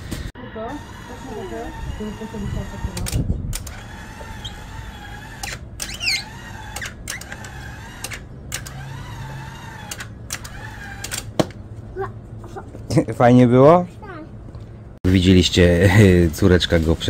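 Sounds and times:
electric motor whine: 0.4s - 11.3s.

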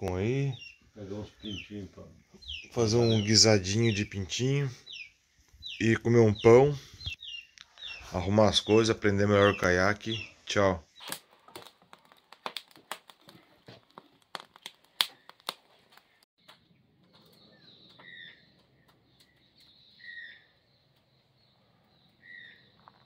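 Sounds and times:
birds chirping: 0.0s - 11.2s, 14.9s - 23.0s
wood fire crackling: 11.0s - 16.3s.

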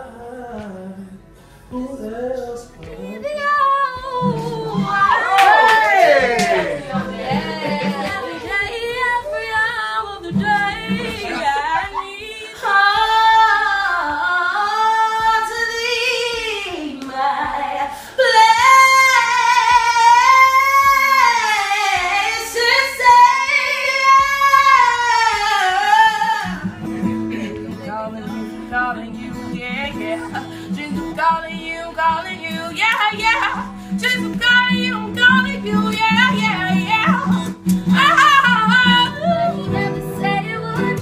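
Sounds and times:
woman singing powerfully: 0.0s - 41.0s.

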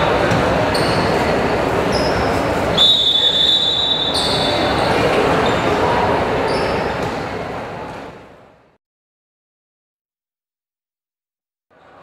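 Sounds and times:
basketball court sounds: 0.0s - 8.4s
crowd chatter: 0.0s - 8.8s.

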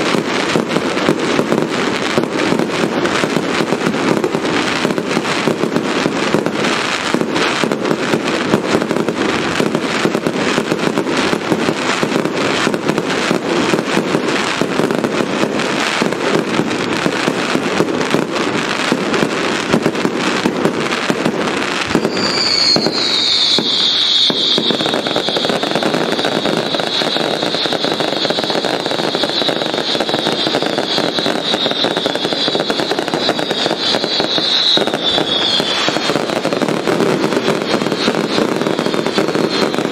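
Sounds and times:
fireworks bangs and crackling: 0.0s - 39.9s
shrill high-pitched whistle: 21.8s - 39.9s.

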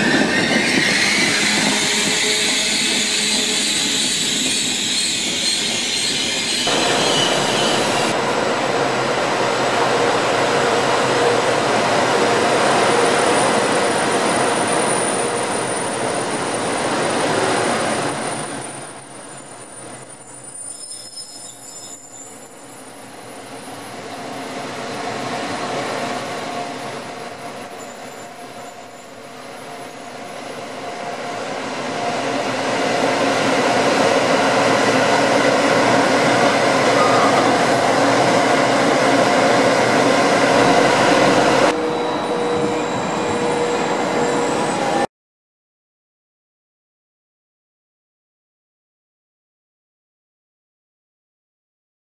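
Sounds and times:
train running past on rails: 0.0s - 45.1s.

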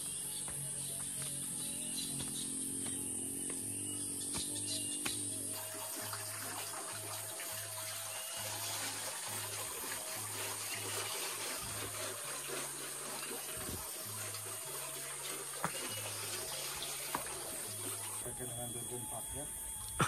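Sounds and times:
water splashing into a pond: 5.4s - 18.3s.

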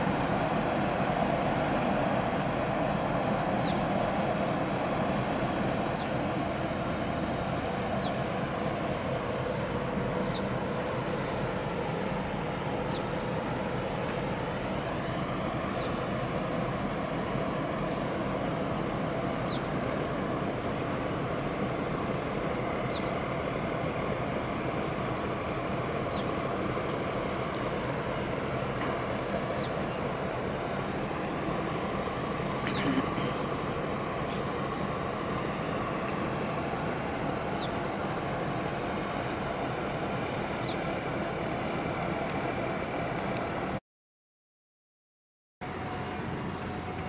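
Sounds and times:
low drone of diesel engines: 0.0s - 43.8s, 45.6s - 47.0s.

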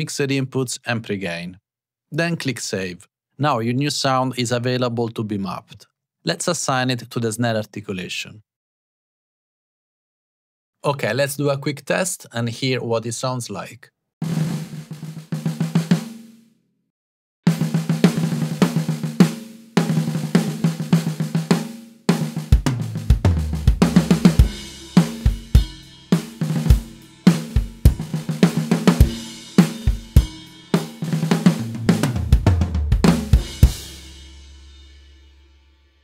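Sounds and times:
drum beat with cymbals: 14.2s - 16.3s, 17.5s - 35.4s
snare drum fills: 14.2s - 16.3s, 17.5s - 34.2s.

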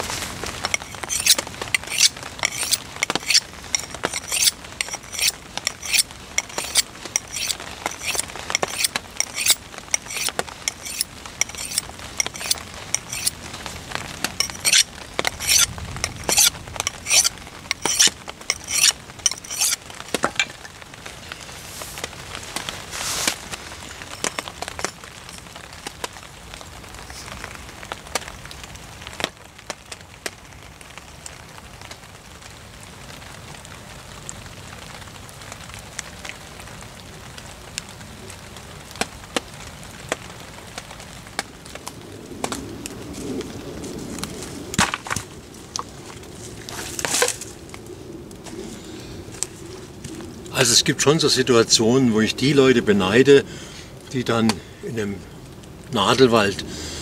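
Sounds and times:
rustling: 0.0s - 25.5s
wood cracking and snapping: 44.1s - 47.8s.

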